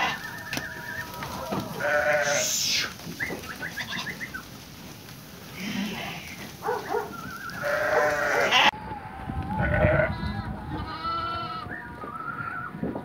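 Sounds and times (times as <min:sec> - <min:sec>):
sheep bleating: 0:00.0 - 0:03.0, 0:03.6 - 0:04.3, 0:05.5 - 0:08.8, 0:09.6 - 0:11.8.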